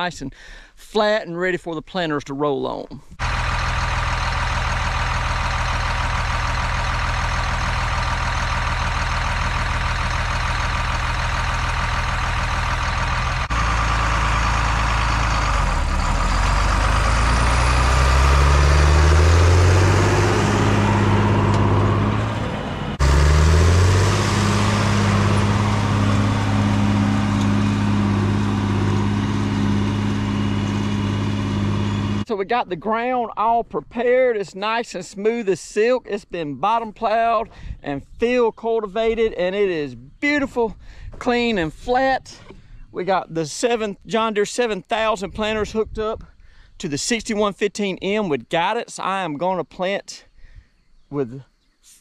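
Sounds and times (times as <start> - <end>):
tractor diesel engine under load: 3.2 - 32.3.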